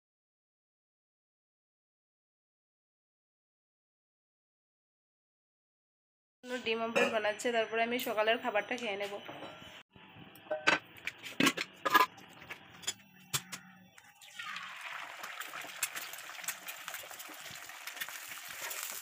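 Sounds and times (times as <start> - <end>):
egg sizzling in hot oil: 14.0 - 19.0.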